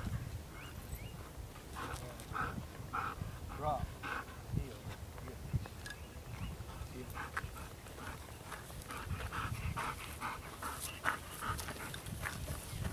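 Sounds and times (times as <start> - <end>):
wind rumble on microphone: 0.0 - 12.9
dog panting rapidly: 1.2 - 4.5, 6.6 - 12.9.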